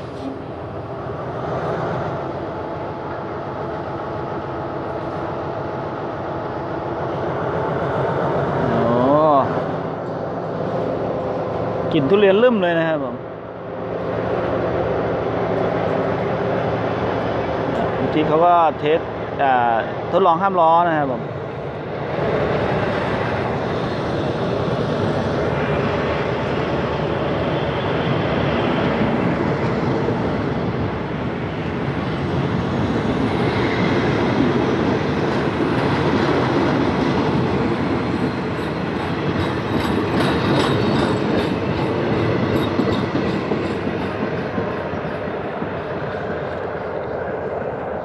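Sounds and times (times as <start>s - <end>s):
train wheels rumbling on rails: 0.0s - 48.0s
wheels clicking over rail joints: 35.3s - 47.2s.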